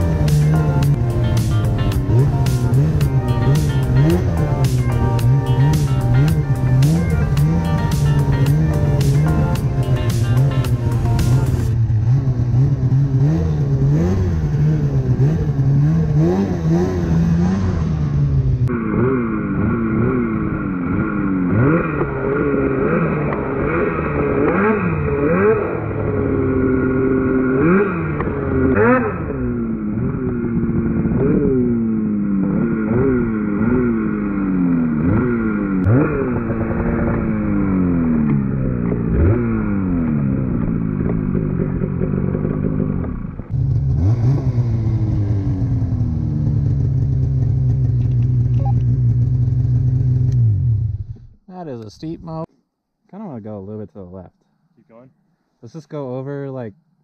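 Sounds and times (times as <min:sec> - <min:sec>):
snowmobile engine revving: 0:00.0 - 0:51.1.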